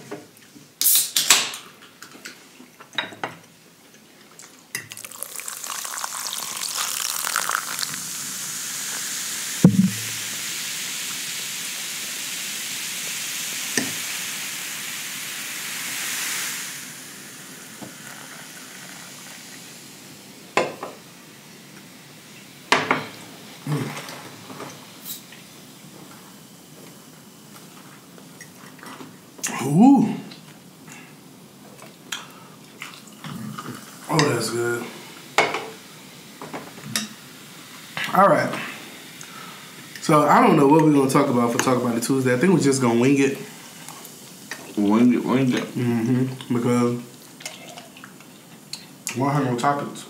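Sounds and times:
cola fizzing over ice: 0:04.7 - 0:11.3, 0:13.5 - 0:21.0, 0:39.2 - 0:48.5
loud knock: 0:09.6 - 0:10.2.

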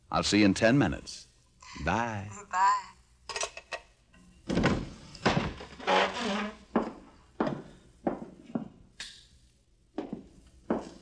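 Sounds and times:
footsteps walking: 0:05.9 - 0:08.8, 0:10.0 - 0:11.0.

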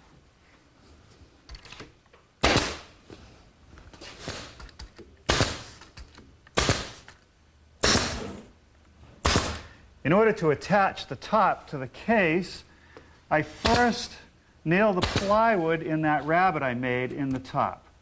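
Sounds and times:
nail gun firing: 0:02.4 - 0:03.0, 0:05.2 - 0:05.9, 0:06.5 - 0:07.2, 0:07.8 - 0:08.4, 0:09.2 - 0:09.7, 0:15.0 - 0:15.4.

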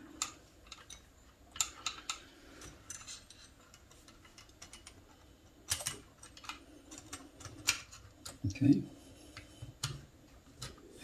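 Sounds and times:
metallic clicks of rifle parts: 0:00.1 - 0:05.0.

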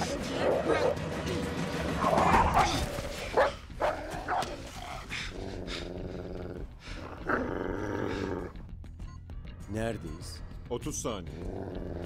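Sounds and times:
wolf snarling and growling: 0:00.0 - 0:08.6, 0:11.3 - 0:12.0.

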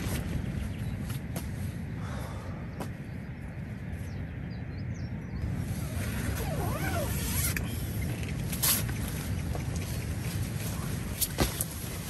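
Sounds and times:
tent zip being pulled: 0:05.5 - 0:09.2.

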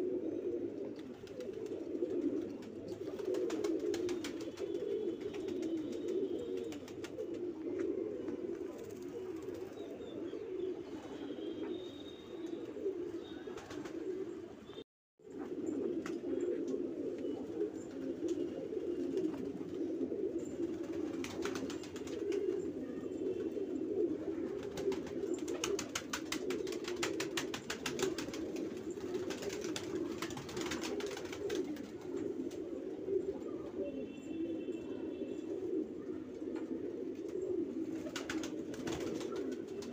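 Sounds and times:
pigeons cooing: 0:00.0 - 0:39.9.

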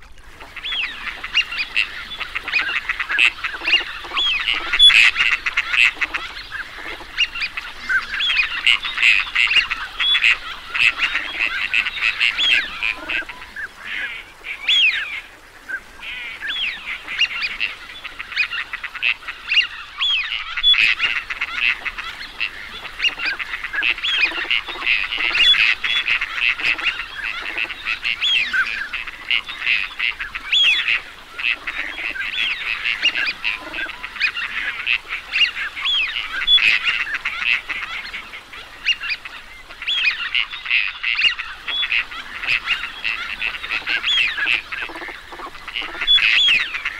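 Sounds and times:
ducks calling: 0:00.3 - 0:46.9.

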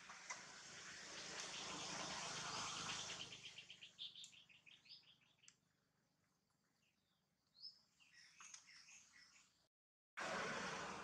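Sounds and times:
faint high bird chirps: 0:00.8 - 0:05.7, 0:06.7 - 0:09.7.

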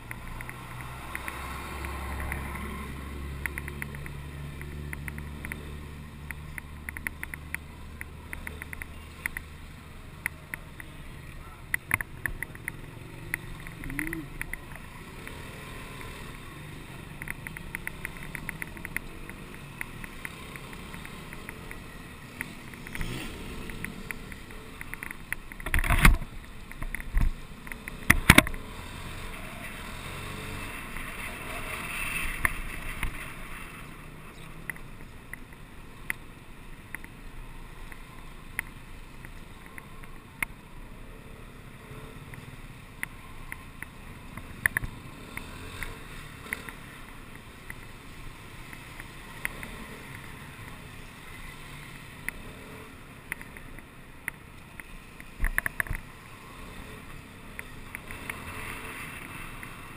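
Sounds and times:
rattling ticks: 0:03.4 - 0:09.6, 0:11.7 - 0:36.2, 0:53.3 - 0:56.1.

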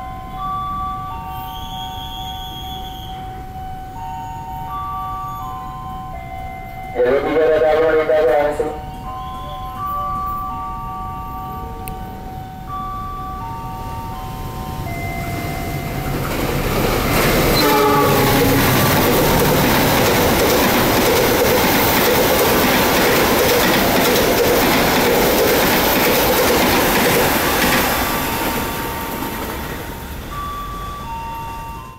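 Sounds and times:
train coaches clattering over rail joints: 0:15.2 - 0:30.0
locomotive horn blast: 0:17.5 - 0:19.3.

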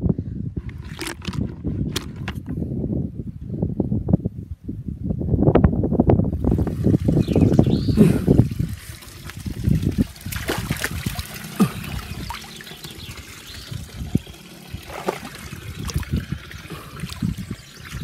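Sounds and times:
water dripping and trickling: 0:06.4 - 0:18.0
hand splashing in muddy water: 0:08.4 - 0:18.0.

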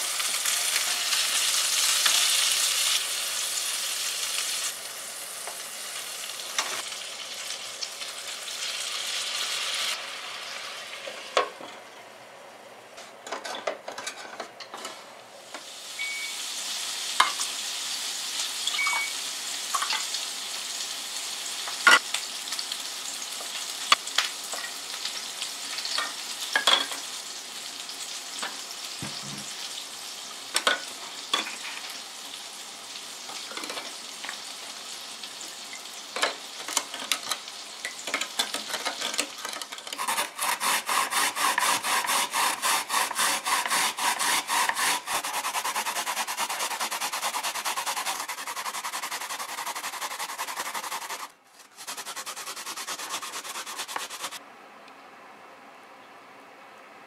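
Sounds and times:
spatula stirring: 0:38.4 - 0:54.4
radish grated on plastic grater: 0:39.9 - 0:54.4.

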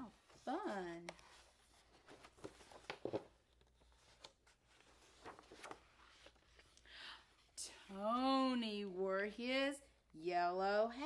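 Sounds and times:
book page turning: 0:00.2 - 0:06.8
paper rustling: 0:00.2 - 0:06.8
paper crinkles: 0:01.7 - 0:06.8.

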